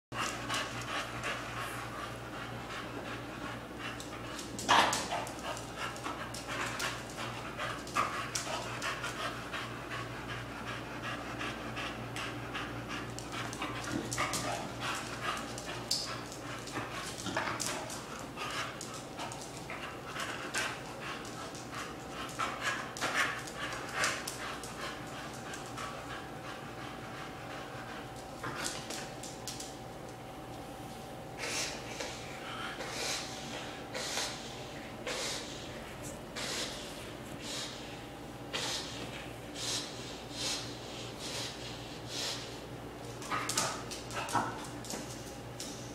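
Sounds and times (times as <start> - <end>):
dog panting: 0.2 - 28.9.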